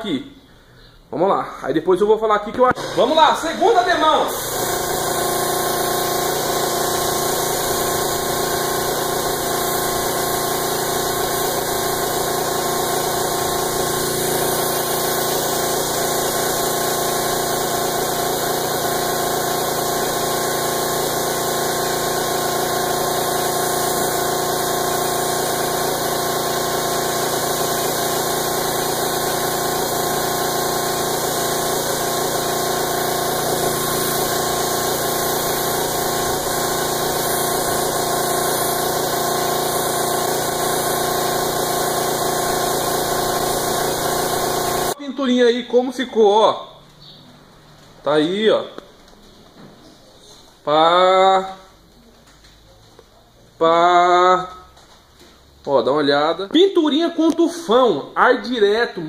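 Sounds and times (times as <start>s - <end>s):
air compressor running: 2.7s - 45.0s
spray gun hissing: 2.8s - 45.0s.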